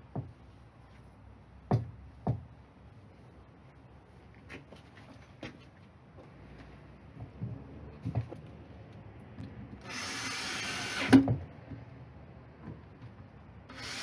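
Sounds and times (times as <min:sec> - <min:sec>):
cordless drill driving screw: 0:09.8 - 0:11.2, 0:13.7 - 0:14.0.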